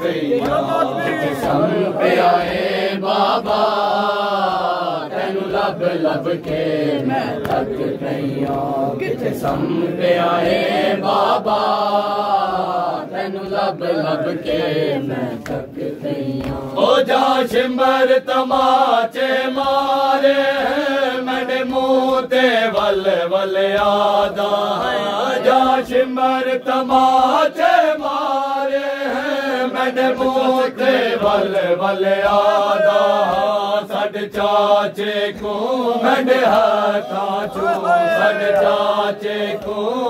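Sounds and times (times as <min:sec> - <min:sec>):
men chanting a lament: 0:00.0 - 0:40.0
hand slaps on chest: 0:06.4 - 0:07.8, 0:16.4 - 0:16.7, 0:21.5 - 0:25.0, 0:31.2 - 0:40.0.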